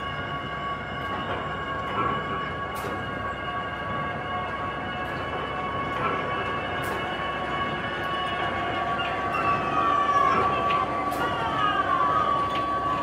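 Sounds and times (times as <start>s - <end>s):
downward sliding whines: 0.0s - 13.0s
high mechanical hum: 0.0s - 13.0s.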